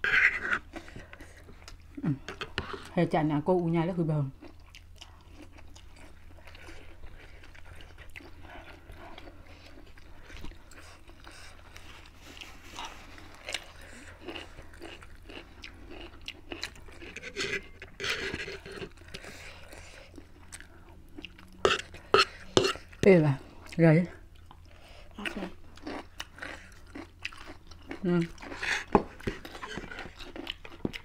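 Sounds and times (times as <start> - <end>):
people chewing and smacking lips: 0.0 - 3.2, 4.2 - 31.0.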